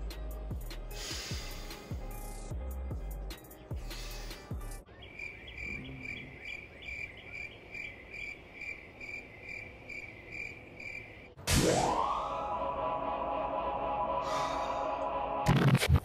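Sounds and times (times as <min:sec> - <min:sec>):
cricket chirping: 0:04.9 - 0:11.4.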